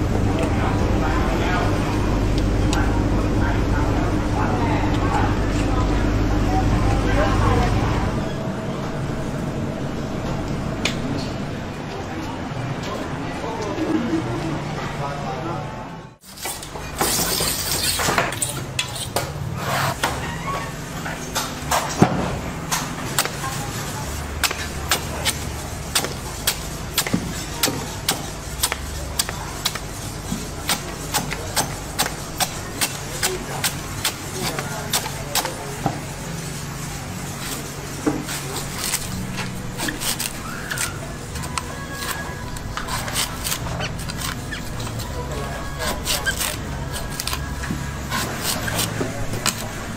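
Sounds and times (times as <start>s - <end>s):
steady low hum: 0.0s - 13.2s
machete chopping coconut husk: 24.4s - 29.8s
knife cutting coconut husk: 24.4s - 35.6s, 37.4s - 45.2s, 45.8s - 49.7s.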